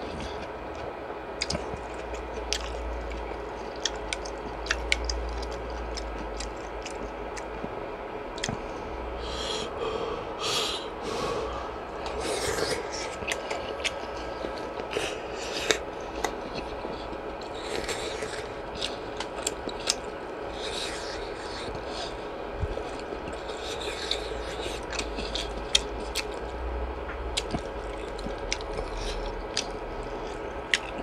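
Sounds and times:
close chewing sounds: 0.0 - 8.6, 11.9 - 31.0
breathy sounds: 8.5 - 15.8.

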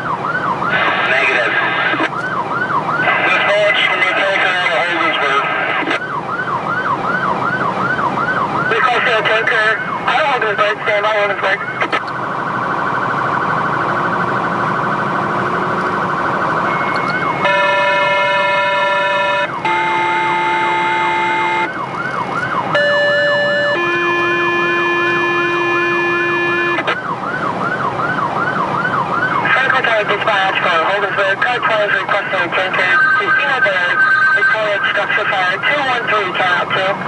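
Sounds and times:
emergency siren wailing: 0.0 - 37.0
horn blasts: 17.0 - 21.7, 22.8 - 26.9.

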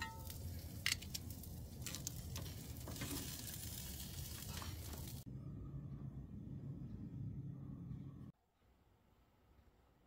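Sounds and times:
food sizzling on grill: 0.0 - 5.2.

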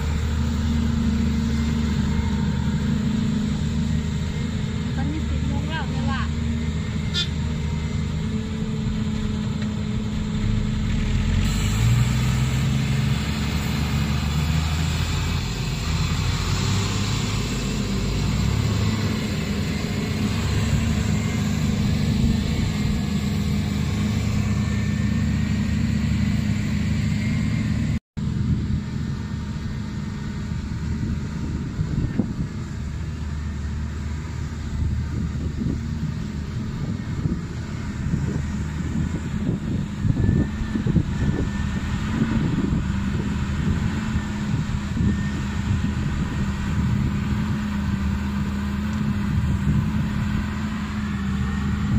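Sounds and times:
hydraulics working: 0.0 - 28.0
excavator diesel engine under load: 0.0 - 51.9.

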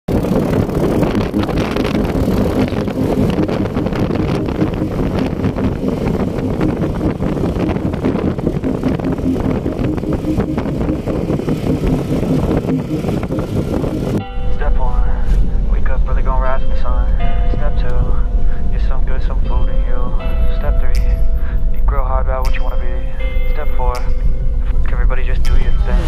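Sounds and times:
quad bike engine running: 0.1 - 14.2
wind buffeting microphone: 0.1 - 14.2.

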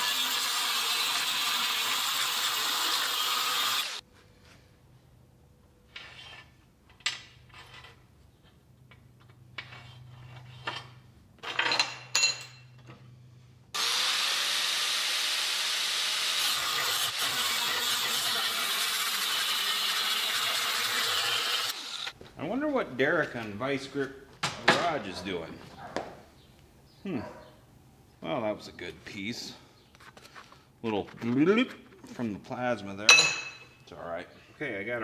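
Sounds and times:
angle grinder cutting steel: 0.0 - 4.0, 13.8 - 22.2.

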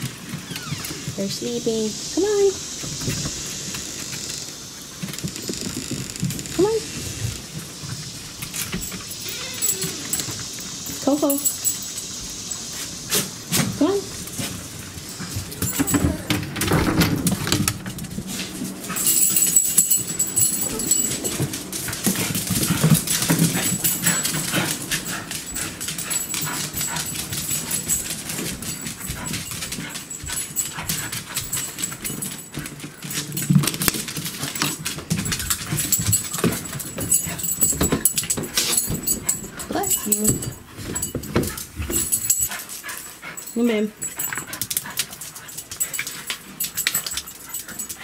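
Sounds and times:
small dogs whining: 8.9 - 10.4, 20.2 - 21.4.

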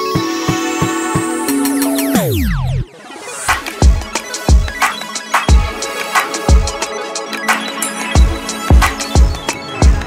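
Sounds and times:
held synth chords: 0.0 - 10.0
steady kick drum: 3.5 - 4.8, 5.5 - 5.8, 6.5 - 6.8, 8.2 - 10.0.

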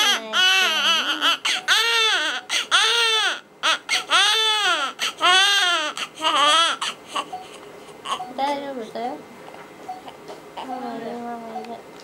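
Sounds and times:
newborn baby crying: 0.0 - 8.3.

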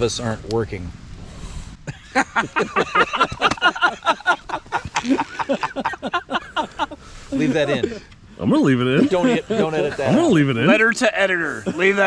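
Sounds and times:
men laughing: 1.8 - 10.8, 11.5 - 12.0.

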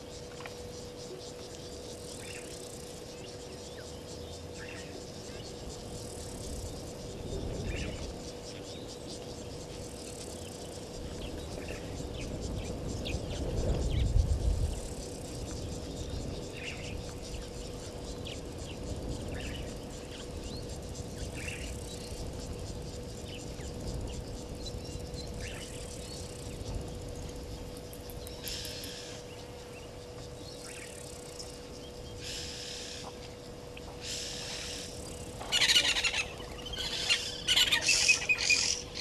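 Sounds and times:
faint steady hum: 0.0 - 39.0
insects buzzing and ticking: 0.0 - 39.0
bird chirps: 34.1 - 39.0.

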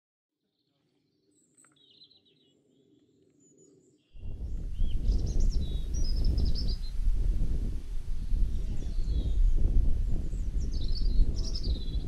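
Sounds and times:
small birds chirping and trilling: 0.5 - 12.0
wind rumble on microphone: 4.1 - 12.0.

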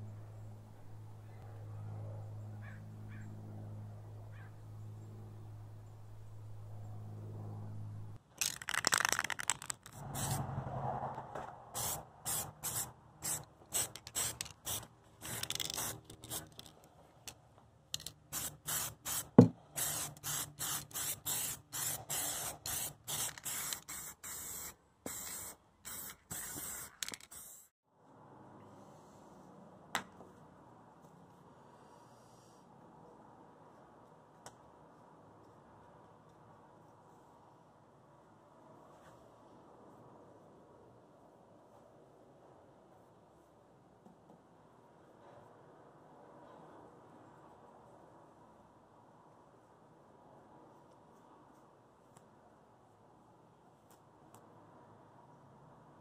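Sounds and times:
steady low hum: 0.0 - 8.2
spray paint cans spraying: 8.4 - 10.4, 11.7 - 16.8, 17.9 - 27.7.

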